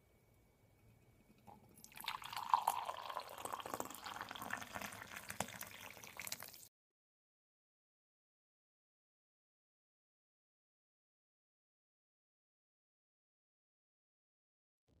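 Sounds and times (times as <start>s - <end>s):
coffee pouring into a mug: 1.3s - 6.7s.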